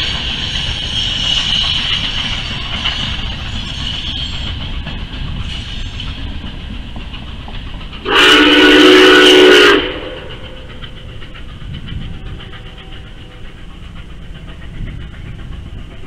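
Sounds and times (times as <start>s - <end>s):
steam whistle blowing: 8.0s - 10.4s.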